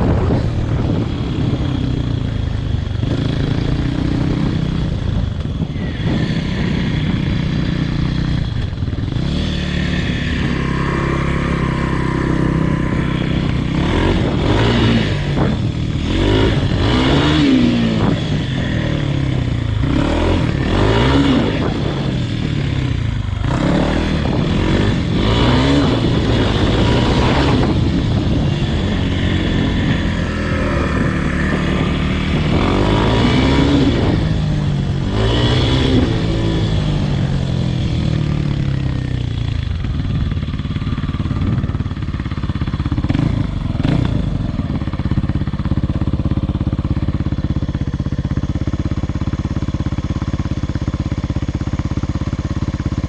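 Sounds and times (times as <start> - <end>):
dirt bike engine revving: 0.0 - 50.6.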